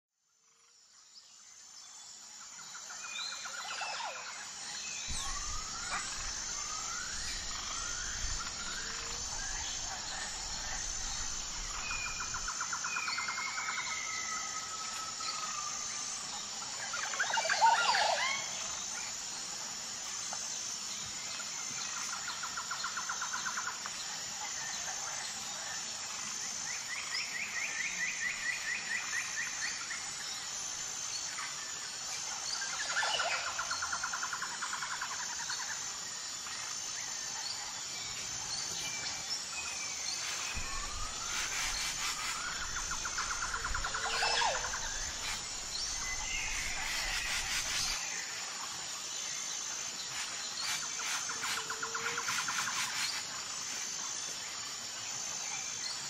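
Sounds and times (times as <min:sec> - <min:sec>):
insect drone with pulsing tone: 0:00.2 - 0:56.0
birds calling: 0:40.2 - 0:48.0.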